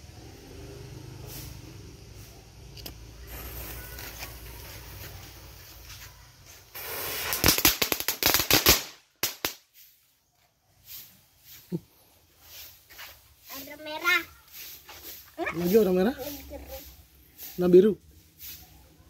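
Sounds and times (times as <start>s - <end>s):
firework hissing: 0.0s - 19.0s
firework crackling pops: 1.2s - 10.1s.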